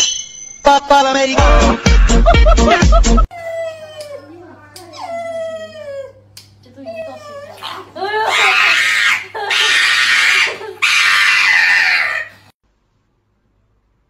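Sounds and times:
loud screaming cries: 8.2 - 12.5.

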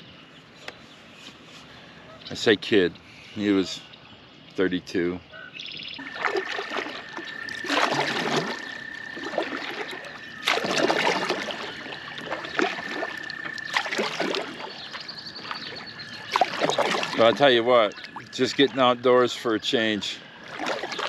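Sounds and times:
kayak paddle splashing in water: 6.0 - 18.9, 20.4 - 21.0.

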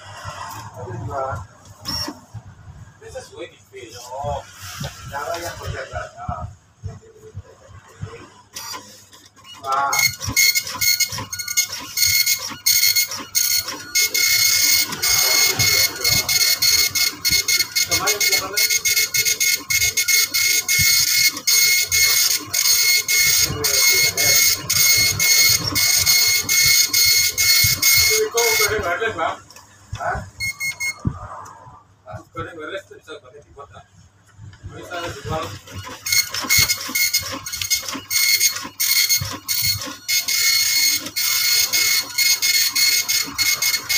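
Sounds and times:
dot matrix printer buzzing: 1.8 - 2.3, 7.9 - 29.3, 30.4 - 31.0, 34.8 - 43.9.

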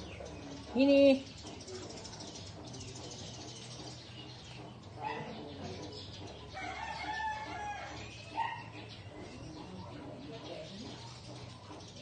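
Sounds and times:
rooster crowing: 6.6 - 8.2.

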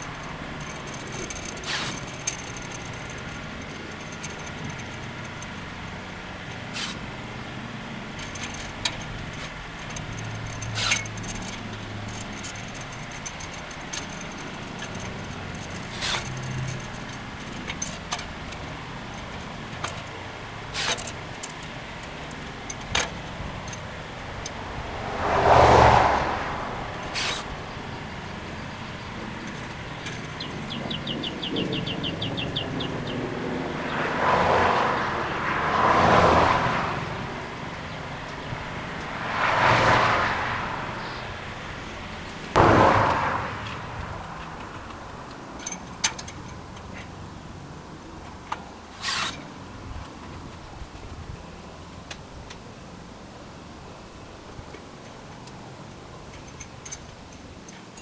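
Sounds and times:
vehicle approaching: 0.0 - 52.0
cutter snipping zip ties: 0.6 - 3.2, 6.7 - 7.0, 8.2 - 17.0, 20.7 - 21.2, 27.0 - 27.5, 49.0 - 49.4
car passing: 20.4 - 45.7.

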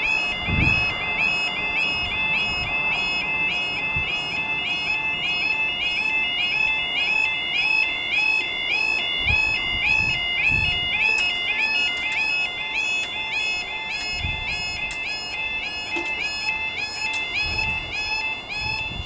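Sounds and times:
level crossing alarm two-tone: 0.0 - 19.0
sharp clicks: 11.1 - 15.2.

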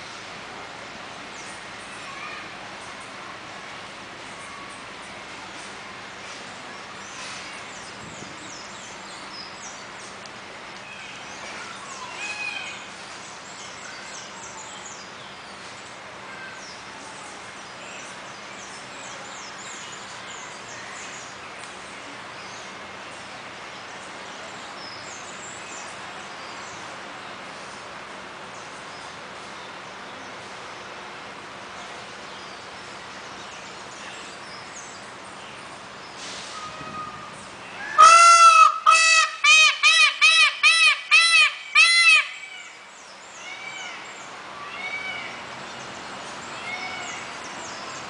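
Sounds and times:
gliding bird call notes: 37.8 - 42.6.

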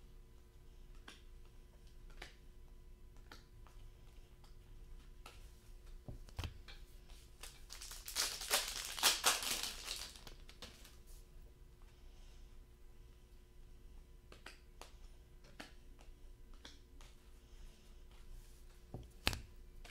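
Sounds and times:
card pack wrapper tearing: 7.7 - 10.8.

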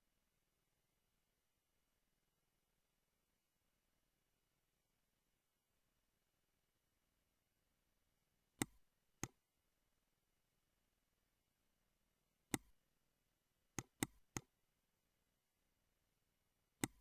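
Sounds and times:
computer mouse clicks: 8.6 - 9.4, 12.5 - 12.8, 13.8 - 14.5, 16.8 - 17.0.

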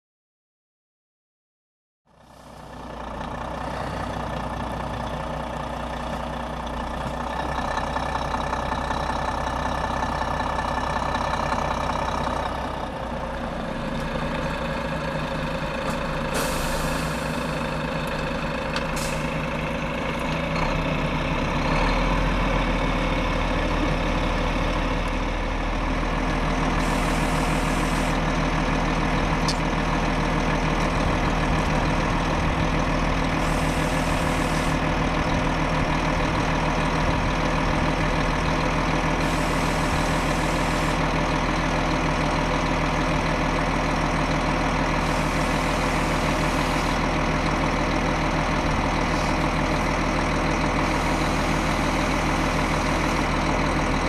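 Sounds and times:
diesel truck engine running: 2.1 - 54.0
short air hisses: 16.3 - 17.4, 19.0 - 19.3.

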